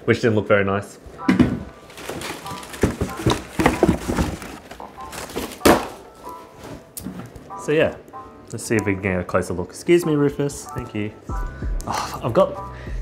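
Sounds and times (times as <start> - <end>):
boots knocking and thumping: 1.2 - 6.0
cardboard box set down: 1.3 - 7.3.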